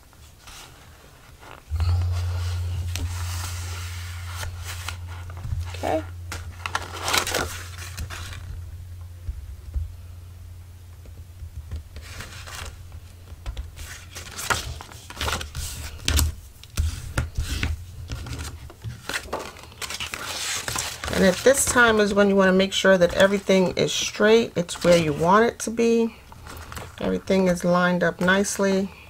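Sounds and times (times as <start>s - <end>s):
low steady hum: 1.2s - 20.2s.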